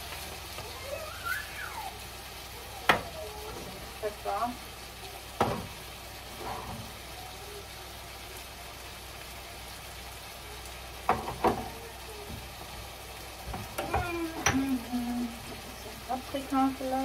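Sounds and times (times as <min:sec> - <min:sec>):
mushrooms and onions sizzling in pan: 0:00.0 - 0:17.0.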